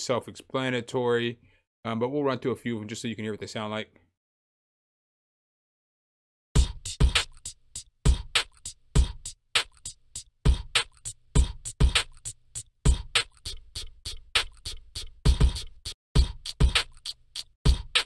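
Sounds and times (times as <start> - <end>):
beatbox hi-hats ticking: 6.6 - 18.0.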